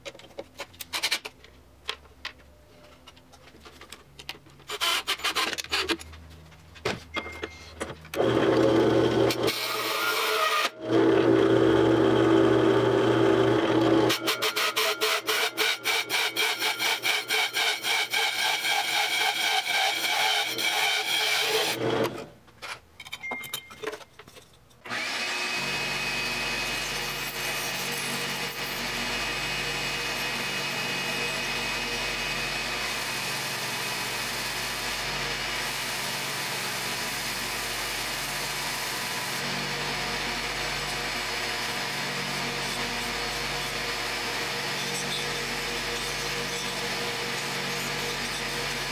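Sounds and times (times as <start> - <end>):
disc sander running: 8.2 - 10.0, 10.8 - 14.4, 24.9 - 48.9.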